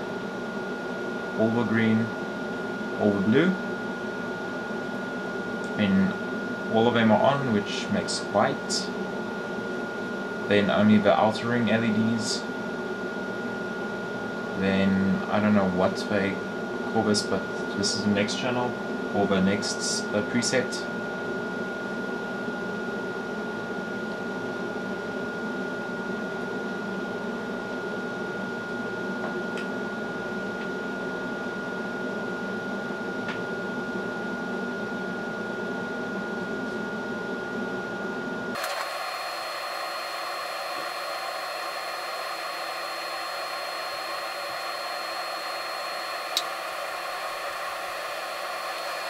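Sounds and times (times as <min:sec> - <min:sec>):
thin high whine: 0:05.6 - 0:09.6, 0:10.3 - 0:12.6, 0:14.5 - 0:20.9, 0:36.2 - 0:49.0
light motor whirring hum: 0:36.6 - 0:49.0.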